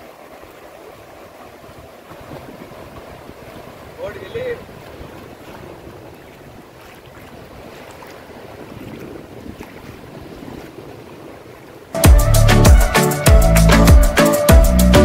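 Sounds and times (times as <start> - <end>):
surf washing over sand: 0.0 - 12.0
wind buffeting microphone: 1.0 - 11.9.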